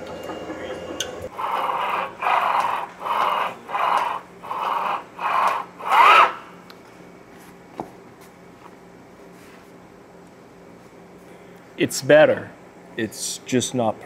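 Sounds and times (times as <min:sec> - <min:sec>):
gantry plate rolling rasp: 0:00.0 - 0:06.4.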